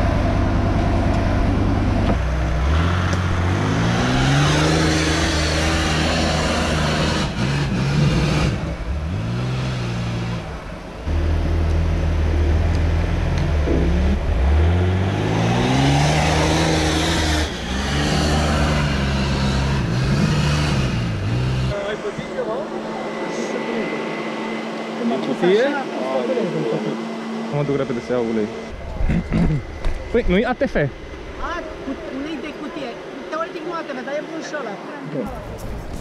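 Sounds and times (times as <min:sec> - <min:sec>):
engine revving under load: 0:00.0 - 0:33.5.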